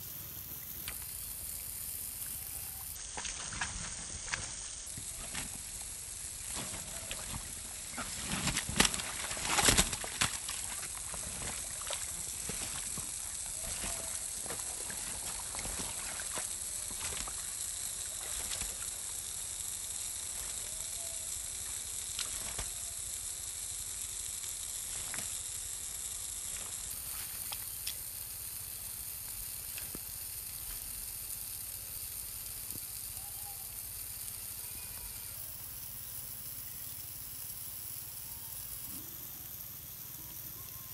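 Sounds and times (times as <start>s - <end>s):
steady high hiss: 0.0s - 40.9s
small clicks: 0.5s - 7.4s, 11.9s - 37.2s
mud sloshing and slapping: 6.5s - 17.5s.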